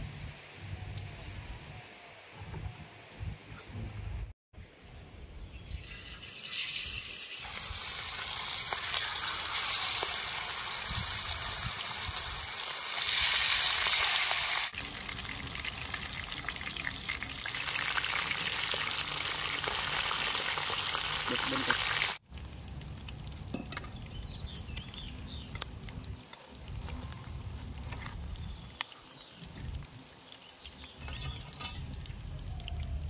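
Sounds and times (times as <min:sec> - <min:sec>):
fish sizzling in hot oil: 0:05.8 - 0:24.2.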